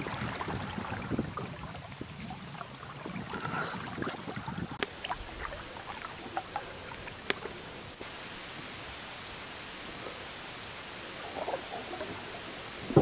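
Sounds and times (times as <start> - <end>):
waves lapping against hull: 0.0 - 13.0
steady hiss: 4.8 - 13.0.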